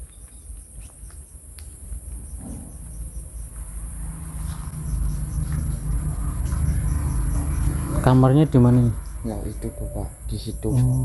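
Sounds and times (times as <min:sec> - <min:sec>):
crickets chirping: 0:00.0 - 0:11.0
low rumble: 0:01.7 - 0:10.6.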